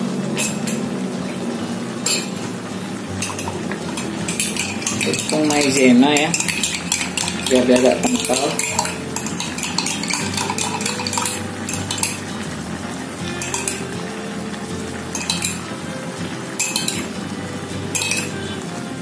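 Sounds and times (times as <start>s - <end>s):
spatula scraping a wok: 3.2s - 14.0s.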